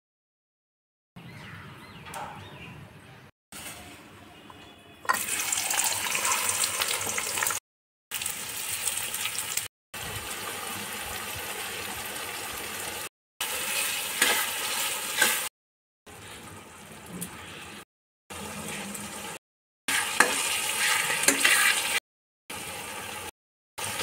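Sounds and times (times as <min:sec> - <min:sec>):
onions sizzling in hot oil: 0:05.1 - 0:15.5, 0:18.4 - 0:24.0
metal spatula scraping a pan: 0:13.7 - 0:15.5, 0:19.9 - 0:22.0.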